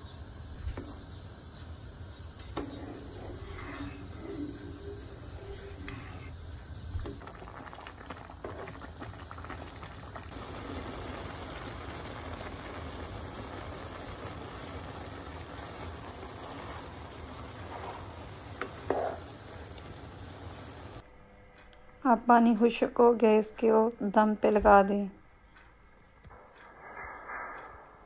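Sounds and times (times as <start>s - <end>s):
pot boiling and bubbling: 0.0s - 21.0s.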